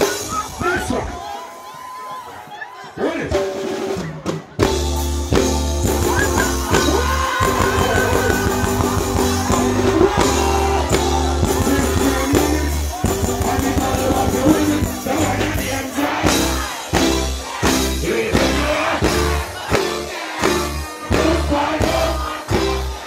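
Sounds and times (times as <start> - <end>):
reggae music with heavy bass: 0.0 - 1.3, 3.4 - 23.0.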